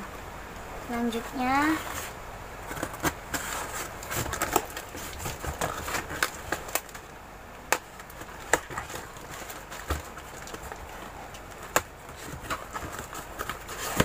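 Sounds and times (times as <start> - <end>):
cardboard box clicks and knocks: 2.7 - 7.0.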